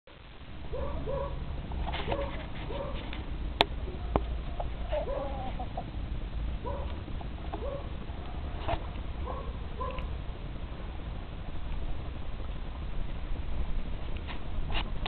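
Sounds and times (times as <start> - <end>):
steady low rumble: 0.1 - 15.0
chickens clucking: 3.8 - 6.0.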